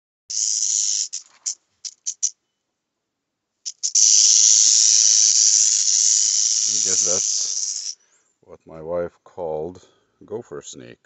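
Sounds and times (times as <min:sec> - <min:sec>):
rattlesnake tail rattle buzzing: 0:00.3 - 0:02.3, 0:03.6 - 0:08.0.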